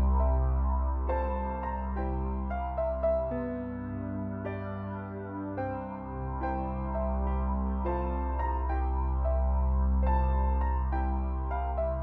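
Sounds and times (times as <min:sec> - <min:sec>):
slow soft new-age music: 0:00.0 - 0:12.0.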